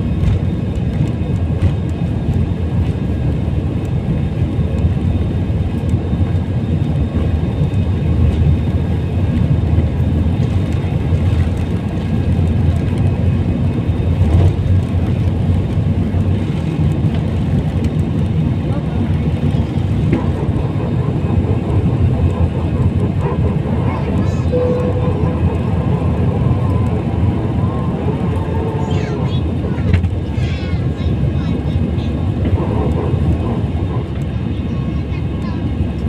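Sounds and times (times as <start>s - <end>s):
jet engines roaring at takeoff: 0.0s - 36.0s.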